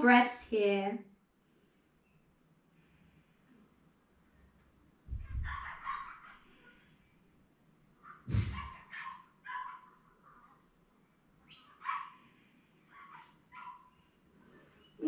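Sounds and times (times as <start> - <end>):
dog barking: 5.2 - 6.9, 8.0 - 10.6, 11.8 - 12.2, 12.9 - 14.0.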